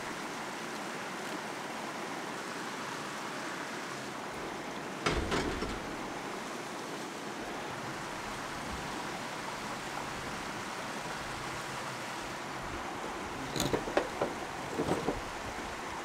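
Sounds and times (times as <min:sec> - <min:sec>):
river water rushing: 0:00.0 - 0:16.0
sharp clicks and knocks: 0:05.0 - 0:06.0, 0:13.5 - 0:15.2.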